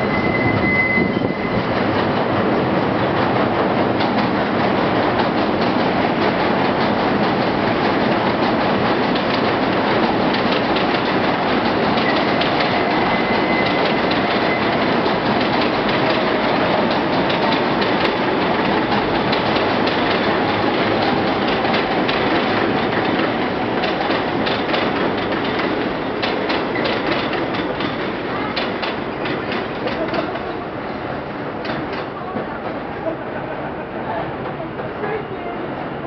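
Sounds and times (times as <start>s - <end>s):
faint wheel squeal: 0.0s - 1.6s
rail-joint clicks: 0.0s - 30.5s, 31.6s - 33.0s
subway train rumble: 0.0s - 36.0s.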